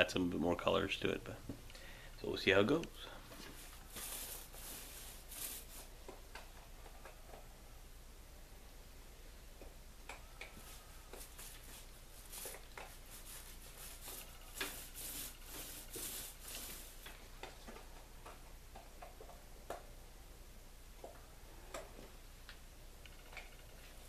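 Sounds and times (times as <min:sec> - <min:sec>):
paint roller swishing: 0:03.2 - 0:05.9, 0:10.4 - 0:17.2.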